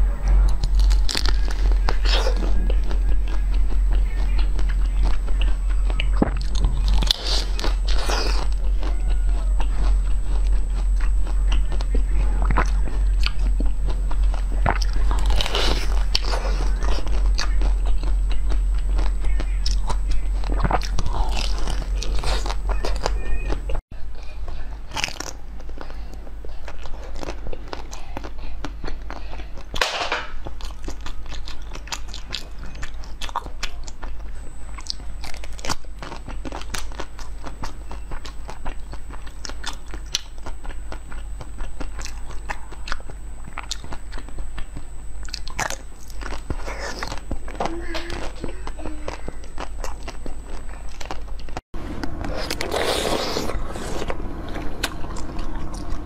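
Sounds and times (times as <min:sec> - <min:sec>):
chewing soft jelly sweets: 0:00.0 - 0:56.0.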